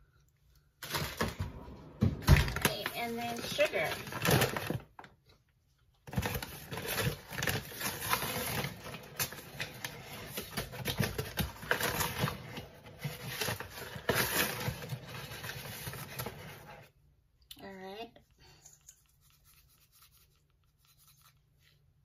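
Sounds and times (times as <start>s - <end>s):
paper bag rustling: 2.3s - 4.9s, 6.1s - 16.7s.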